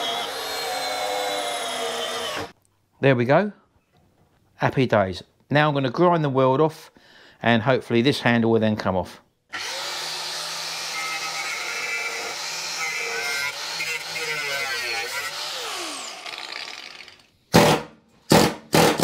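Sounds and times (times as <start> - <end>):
angle grinder grinding metal: 9.6 - 17.3
grinder burst: 9.6 - 19.0.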